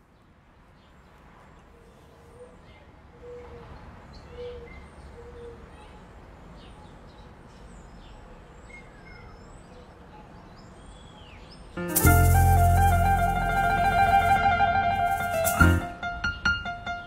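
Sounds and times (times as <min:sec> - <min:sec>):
steady low hiss: 0:11.8 - 0:16.2.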